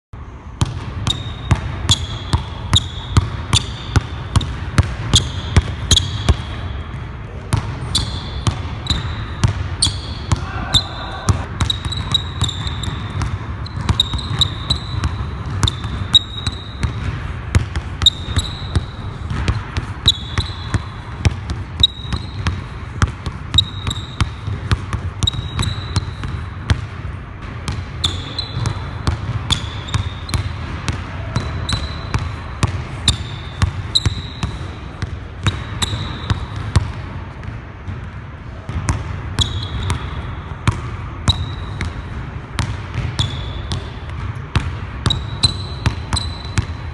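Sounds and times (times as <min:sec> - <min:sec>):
basketball bouncing on wood floor: 0:00.6 - 0:42.0, 0:42.6 - 0:46.9
sneakers squeaking: 0:00.6 - 0:46.9.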